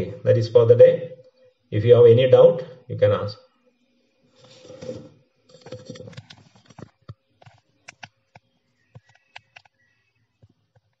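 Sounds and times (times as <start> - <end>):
faint clicks and taps: 6.1 - 9.8.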